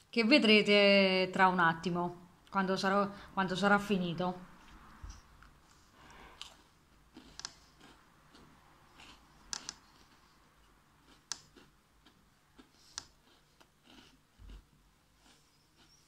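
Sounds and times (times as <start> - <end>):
chewing crunchy biscuit: 6.4 - 16.0.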